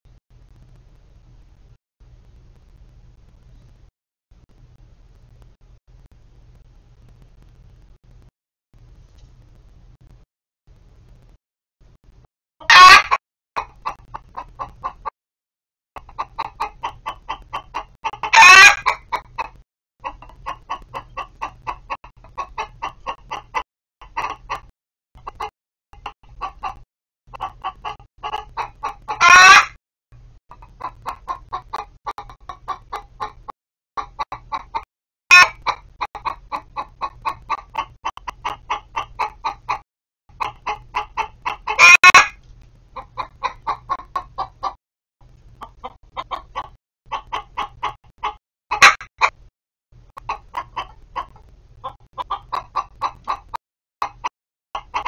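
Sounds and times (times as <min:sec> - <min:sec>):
hen squawking: 0:12.6 - 0:14.5, 0:16.1 - 0:19.2, 0:27.4 - 0:29.7, 0:35.3 - 0:39.8, 0:40.4 - 0:42.3
hens clucking: 0:12.6 - 0:15.1, 0:16.0 - 0:29.8, 0:30.5 - 0:42.4, 0:43.0 - 0:44.8, 0:45.6 - 0:49.4, 0:50.2 - 0:55.0.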